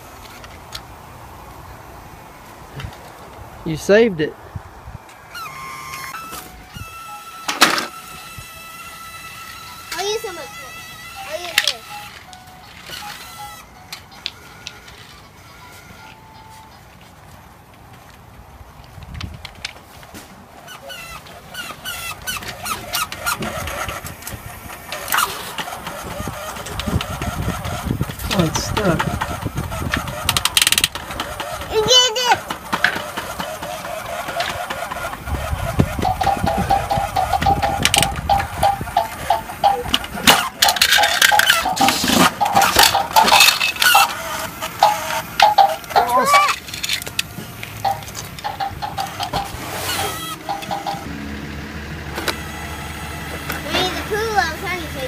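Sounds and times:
toy vehicle motor whirring: 5.1 - 16.8, 20.6 - 51.1, 52.2 - 55.0
hard plastic clattering: 19.1 - 51.1.

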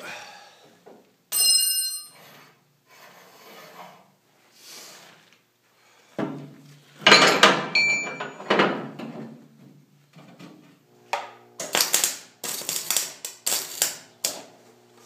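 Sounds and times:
welding arc crackling: 11.1 - 15.0.

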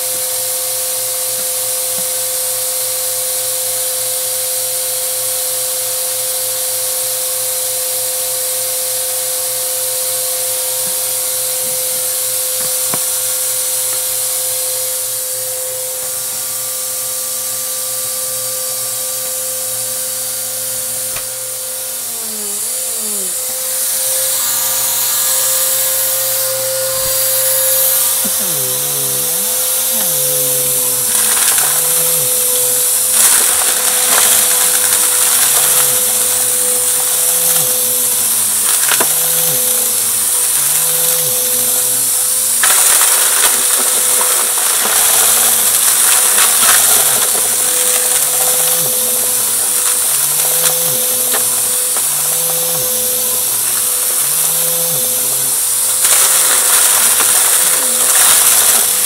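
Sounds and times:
vacuum cleaner motor whine: 0.0 - 59.0
debris being sucked up: 23.2 - 59.0.

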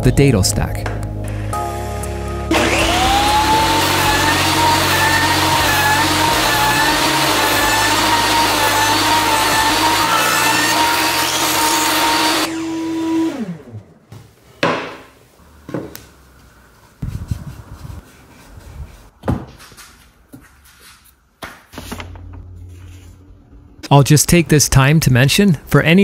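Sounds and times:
power tool winding down: 2.5 - 13.8.

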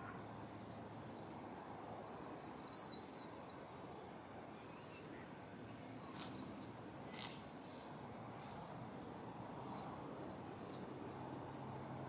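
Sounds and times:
low outdoor hush: 0.0 - 12.0.

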